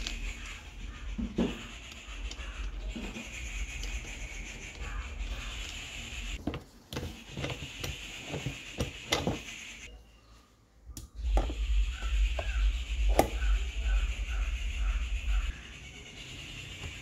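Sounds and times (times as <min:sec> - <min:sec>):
steady low rumble: 0:10.8 - 0:15.8.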